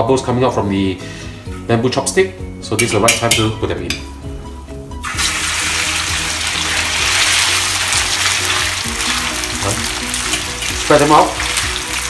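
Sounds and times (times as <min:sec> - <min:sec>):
meat sizzling in hot oil: 0:05.0 - 0:12.0.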